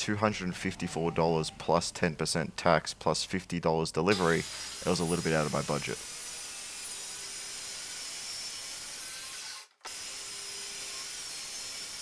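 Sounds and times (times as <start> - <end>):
circular saw cutting plywood: 4.1 - 12.0.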